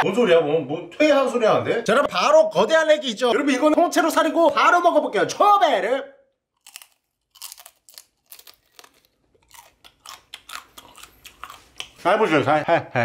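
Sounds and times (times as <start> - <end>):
chewing: 6.6 - 12.0
crunching crab shell: 6.6 - 12.0.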